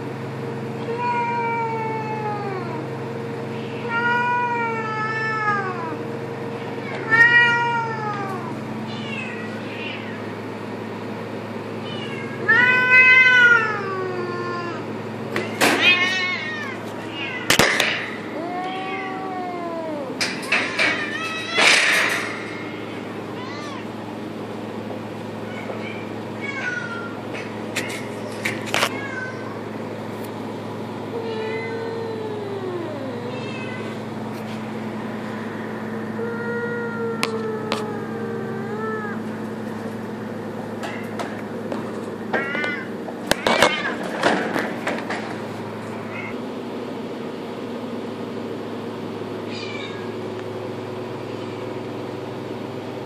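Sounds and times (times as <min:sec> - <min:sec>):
cat yowling: 0:00.8 - 0:02.9, 0:03.5 - 0:06.1, 0:06.7 - 0:10.3, 0:11.8 - 0:24.0, 0:25.4 - 0:28.1, 0:28.7 - 0:29.7, 0:31.1 - 0:34.1, 0:36.1 - 0:39.4, 0:42.3 - 0:44.1, 0:46.0 - 0:46.4, 0:49.5 - 0:50.2.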